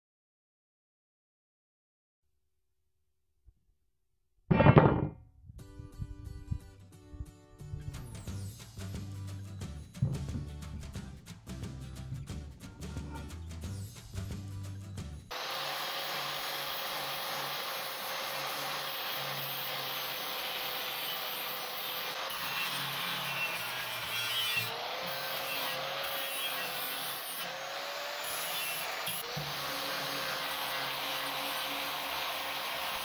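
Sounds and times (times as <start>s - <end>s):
music: 5.4s - 15.3s, 22.5s - 24.7s
angle grinder cutting steel: 15.3s - 33.0s.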